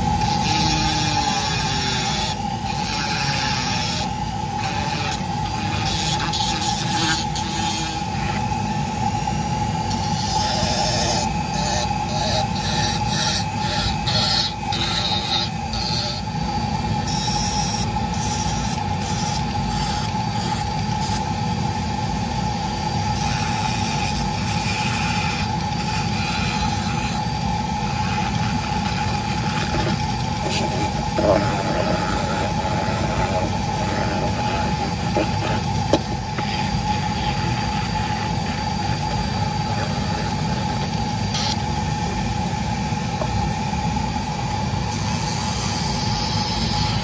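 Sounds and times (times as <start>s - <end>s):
rotary tool motor whine: 0.0s - 47.0s
burr grinding into wood: 29.1s - 40.5s.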